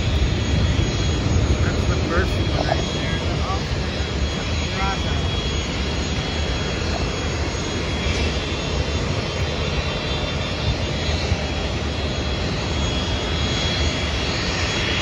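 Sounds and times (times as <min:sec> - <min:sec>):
high engine whine: 0:00.0 - 0:15.0
jet engines rumbling: 0:00.0 - 0:15.0.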